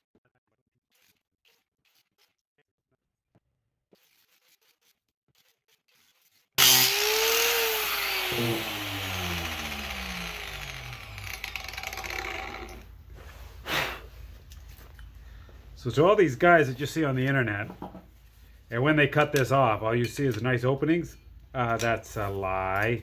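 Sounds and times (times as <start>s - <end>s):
angle grinder whine coasting down: 6.6s - 12.9s.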